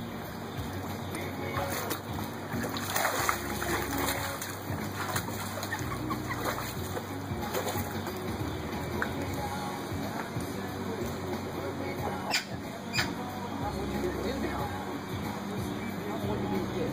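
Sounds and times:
pool water sloshing and splashing: 0:00.0 - 0:16.7
inflatable float squeaking: 0:01.5 - 0:08.2, 0:12.1 - 0:13.2.

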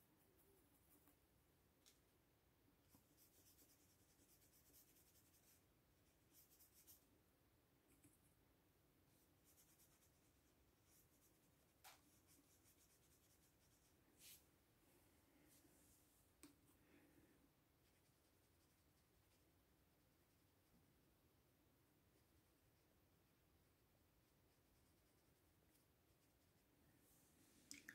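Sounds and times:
paintbrush strokes on paper: 0:02.8 - 0:07.1, 0:09.0 - 0:14.6, 0:17.7 - 0:20.7, 0:22.1 - 0:27.7.

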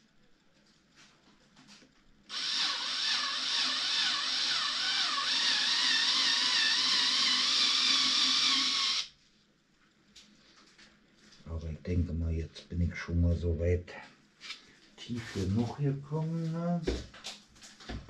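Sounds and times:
drill grinding with wavering whine: 0:02.3 - 0:09.1.

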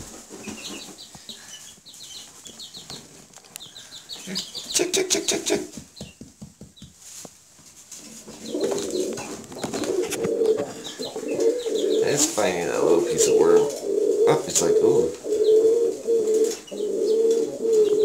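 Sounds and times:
rustling and scratching in straw: 0:00.0 - 0:03.6, 0:06.8 - 0:13.9
baby chicks peeping: 0:00.0 - 0:18.0.

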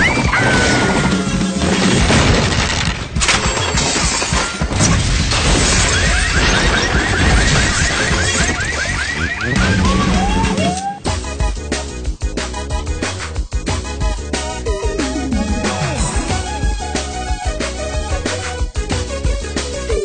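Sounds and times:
cartoon background music: 0:00.0 - 0:02.5, 0:04.6 - 0:20.0
slapstick crash effects: 0:00.4 - 0:08.6.

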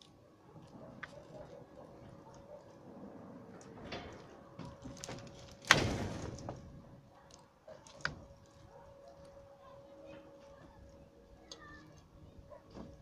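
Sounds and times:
knocks and scrapes of roofing boards: 0:02.9 - 0:06.8, 0:12.6 - 0:13.0
roofing sheets clattering: 0:03.3 - 0:06.8.

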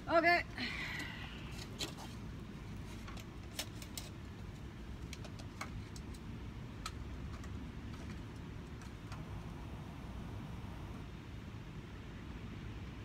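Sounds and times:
wooden shingles clicking and tapping: 0:02.9 - 0:09.2
steady low rumble: 0:05.8 - 0:13.0.

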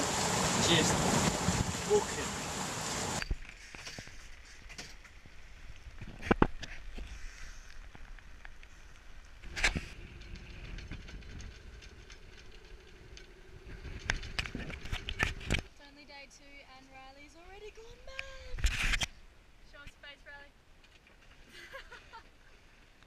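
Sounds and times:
seas washing past hull: 0:00.0 - 0:03.2.

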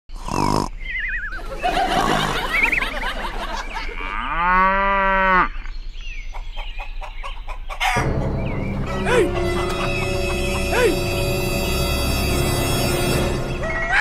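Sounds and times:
cow mooing: 0:03.9 - 0:05.7.

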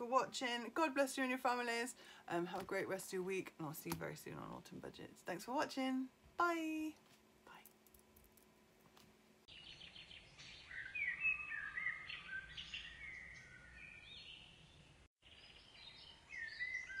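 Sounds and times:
faint steady hiss: 0:03.6 - 0:09.5
songbirds singing: 0:09.5 - 0:17.0.

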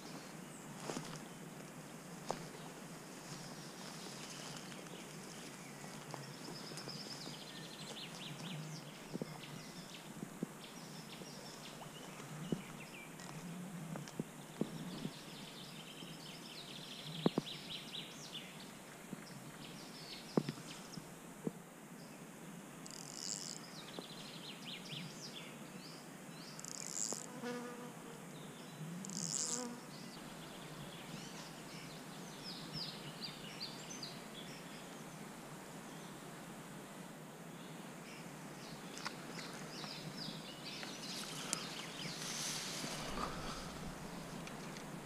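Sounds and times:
outdoor hiss: 0:35.0 - 0:45.0
flies buzzing: 0:41.2 - 0:45.0.

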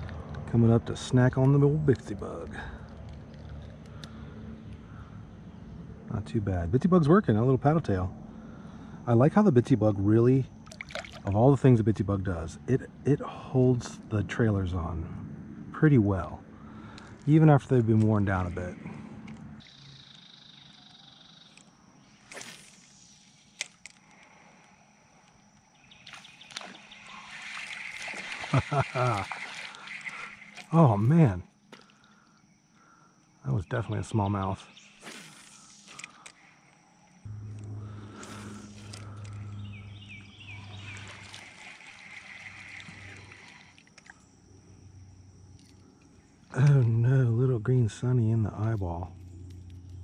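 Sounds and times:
faint outdoor ambience: 0:00.0 - 0:50.0
low steady hum: 0:00.0 - 0:50.0
shallow stream running: 0:10.0 - 0:11.7, 0:22.0 - 0:32.9, 0:34.9 - 0:47.2
thin high whine: 0:19.6 - 0:31.5, 0:33.4 - 0:46.4
fishing rod cast swish: 0:35.0 - 0:36.0
steady high-pitched tone: 0:35.3 - 0:43.7.

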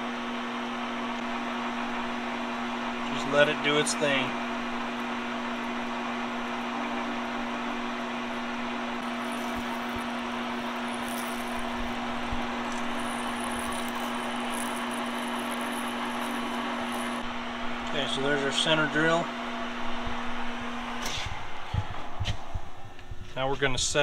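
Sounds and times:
metal lathe motor hum: 0:04.9 - 0:17.8
drill cutting steel bar: 0:09.0 - 0:17.3.

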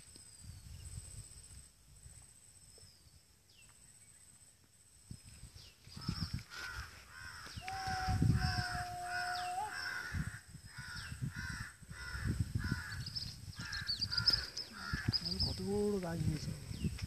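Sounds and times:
falling bird calls: 0:05.6 - 0:16.0
crows cawing: 0:06.0 - 0:15.3.

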